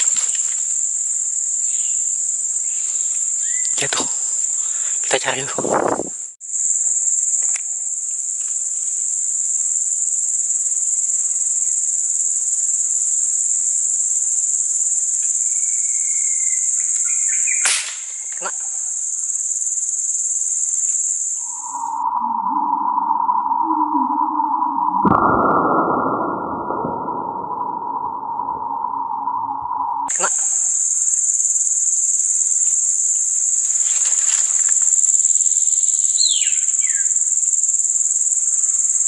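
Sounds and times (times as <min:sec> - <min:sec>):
high-pitched insect drone: 0:00.0 - 0:39.0
sharp click: 0:17.6 - 0:18.1.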